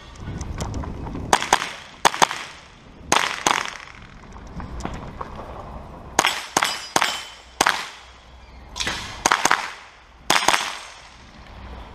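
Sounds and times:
rifle shots: 1.3s - 4.1s, 6.2s - 8.1s, 8.8s - 11.2s.

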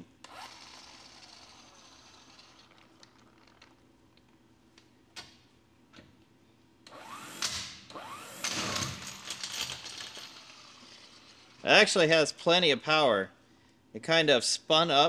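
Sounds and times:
impact wrench whining and hammering: 0.0s - 3.8s, 6.8s - 11.6s.

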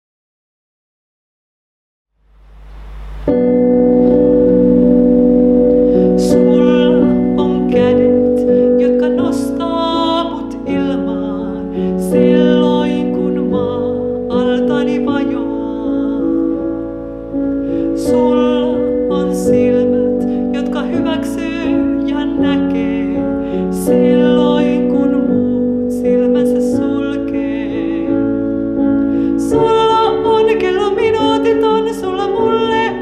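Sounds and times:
digital piano chords: 2.2s - 33.0s
woman singing: 6.0s - 16.9s, 17.9s - 28.6s, 29.3s - 33.0s.

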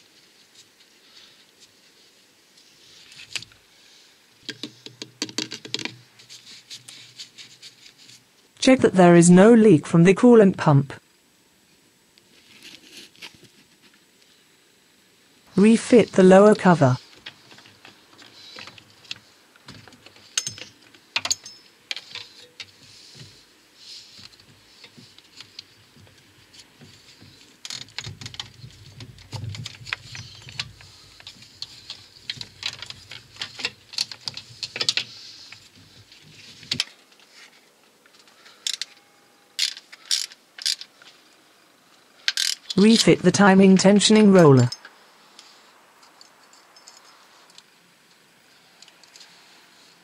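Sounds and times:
metal engine parts being fitted: 19.7s - 22.8s
hand tools clinking on metal: 20.2s - 22.7s.

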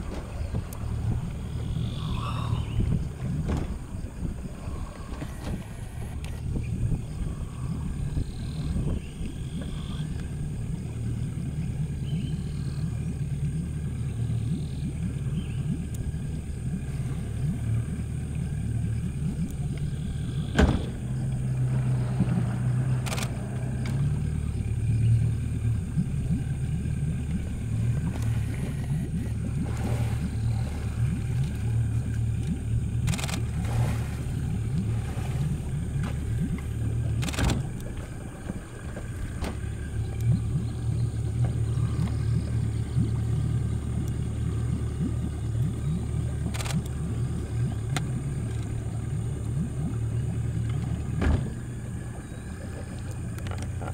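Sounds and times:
boat motor running: 0.0s - 53.9s.

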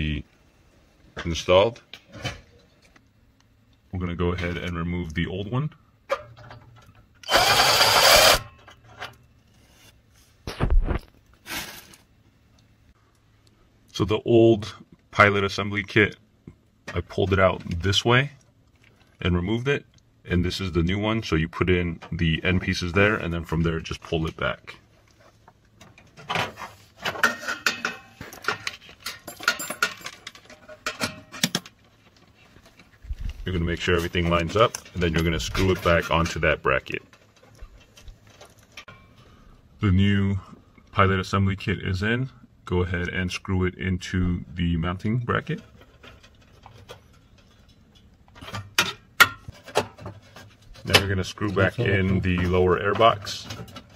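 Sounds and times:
cordless drill running: 7.2s - 8.4s.

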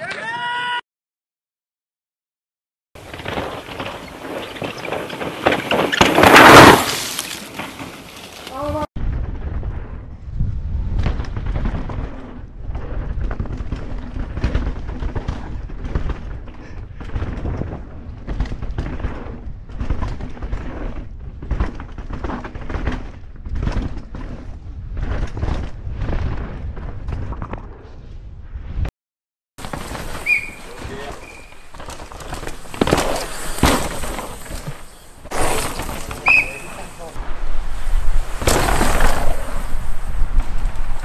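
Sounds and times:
bike knocks and rattles: 3.0s - 8.7s, 10.9s - 27.6s, 29.6s - 37.1s, 38.2s - 41.0s
wind and tyre rush: 3.0s - 28.9s, 29.6s - 41.0s.

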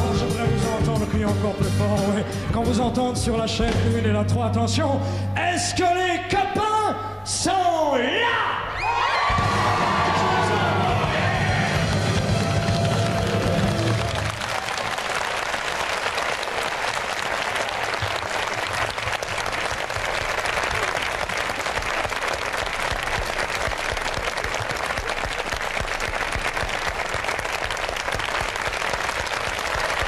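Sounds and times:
audience applauding: 9.0s - 30.0s.

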